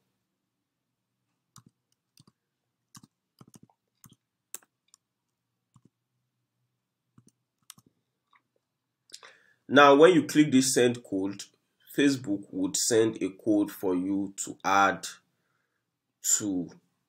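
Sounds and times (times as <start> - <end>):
computer keyboard clicking: 1.6 - 5.0, 5.7 - 6.0, 7.2 - 7.9.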